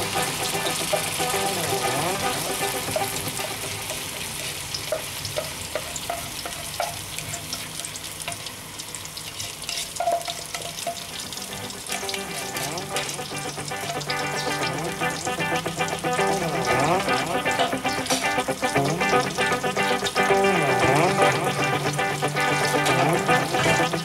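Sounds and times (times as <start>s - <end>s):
paste sizzling in hot oil: 0.0s - 24.0s
spoon scraping a plate: 9.3s - 11.0s.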